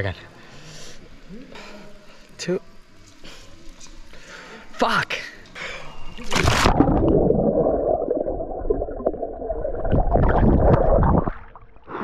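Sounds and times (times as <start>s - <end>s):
splash into pool: 6.2s - 7.1s.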